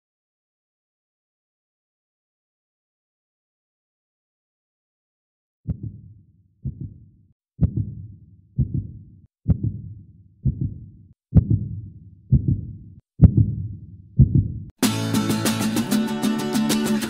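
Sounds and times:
heartbeat thuds: 5.7 - 14.7.

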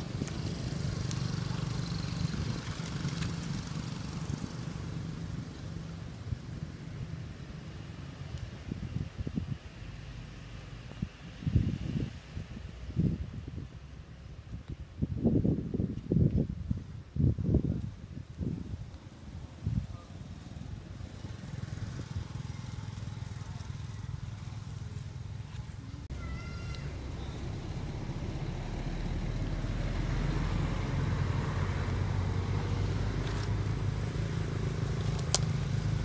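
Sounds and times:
low steady rumble: 0.0 - 36.0
baby monkey high cry: 26.1 - 26.9.

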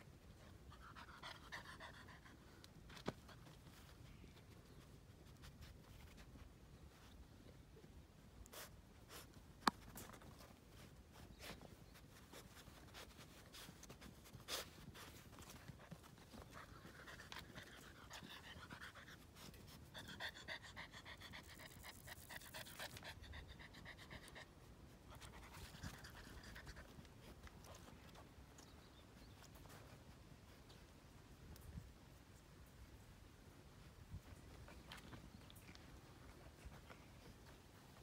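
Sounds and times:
puppy panting: 10.0 - 28.3.

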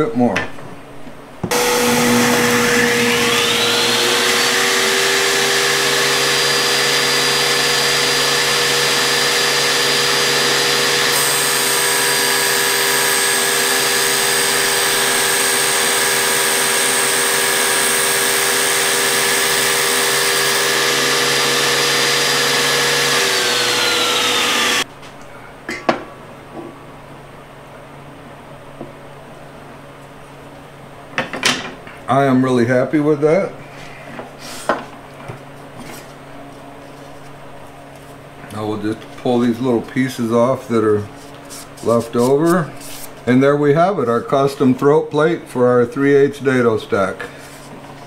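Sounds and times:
saw winding down: 1.5 - 24.9
table saw whining: 1.5 - 24.9.

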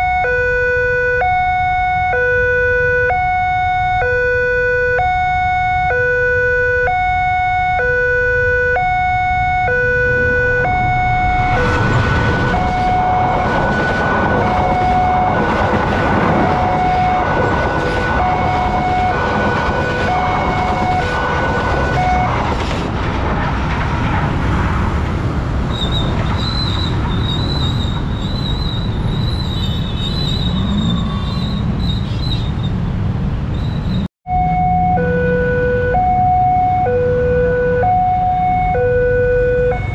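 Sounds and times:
level crossing alarm two-tone wail: 0.0 - 22.5, 34.3 - 39.9
passing train wheel clatter: 11.6 - 30.6.

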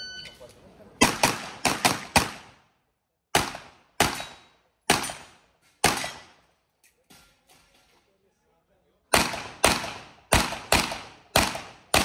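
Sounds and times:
handgun shots with echo: 3.4 - 6.3.

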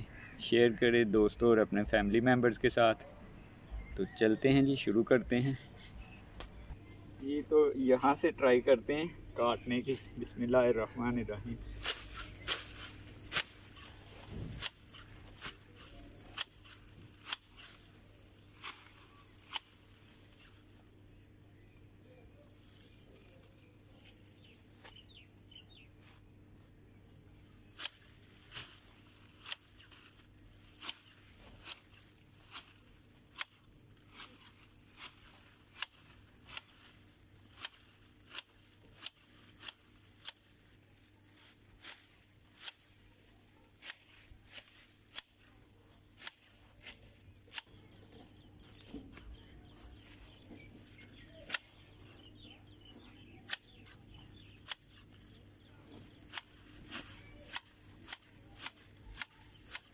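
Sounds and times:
hedge shears snipping: 11.6 - 20.6, 27.7 - 52.3, 52.9 - 59.9.

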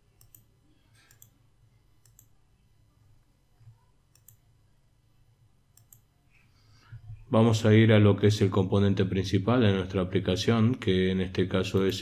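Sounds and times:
low room hum: 0.0 - 12.0
computer mouse clicks: 0.2 - 1.4, 2.0 - 2.4, 4.1 - 4.4, 5.7 - 6.1.

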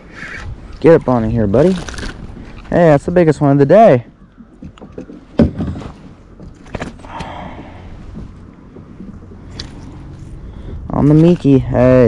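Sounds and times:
fish thumping against kayak: 4.2 - 9.8.

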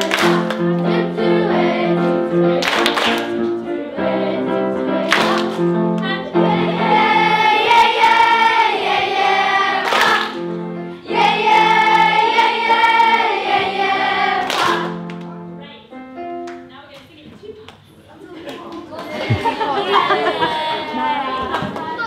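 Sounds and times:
children singing as a choir: 0.0 - 5.6, 6.3 - 15.0
piano accompaniment: 0.0 - 16.9.

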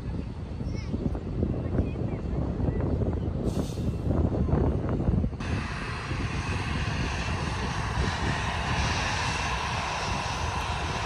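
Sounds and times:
jet engines roaring: 5.4 - 11.0.

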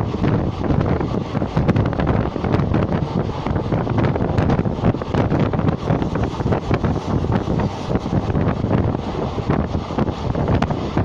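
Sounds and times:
train rumble: 0.0 - 11.0
wind buffeting microphone: 0.0 - 11.0.

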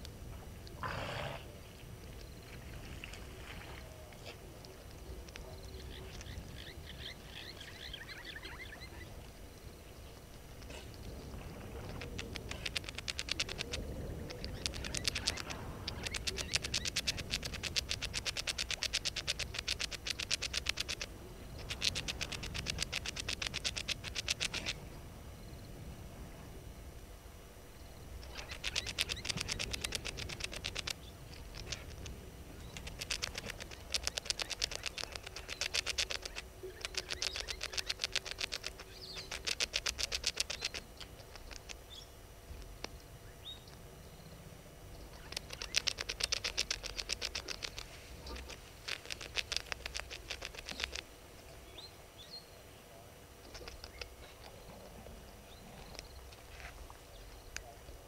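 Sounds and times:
animal rattling trills: 4.2 - 25.0, 27.8 - 52.6, 53.3 - 58.0
faint ticks: 9.1 - 24.8, 28.2 - 43.8, 44.9 - 51.5.

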